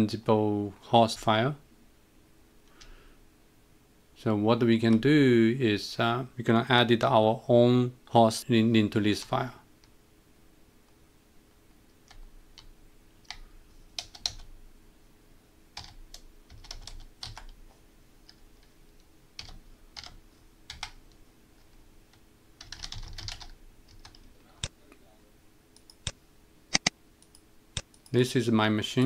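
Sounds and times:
computer keyboard typing: 0:12.0 - 0:14.5, 0:15.8 - 0:17.6, 0:19.4 - 0:21.2, 0:22.1 - 0:24.2.

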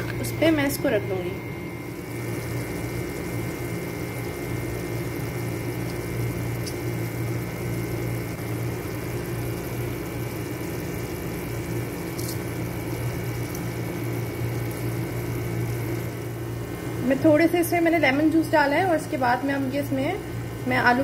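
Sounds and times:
electric fan humming: 0:00.0 - 0:21.0.

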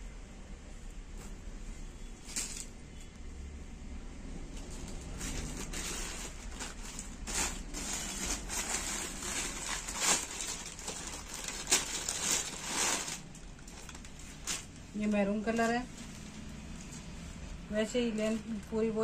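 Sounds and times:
plastic bag crinkling and rustling: 0:04.5 - 0:17.2.

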